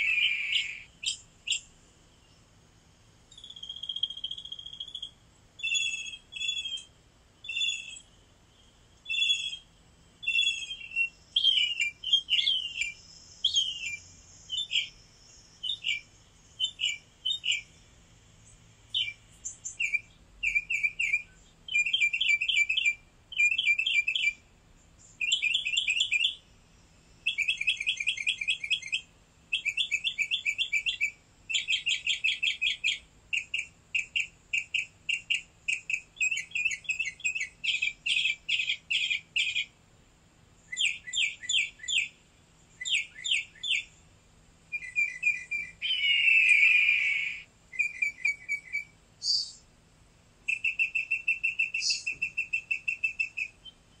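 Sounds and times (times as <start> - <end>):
small songbird chirping: 0.0 - 39.8, 40.5 - 49.7, 50.4 - 54.0.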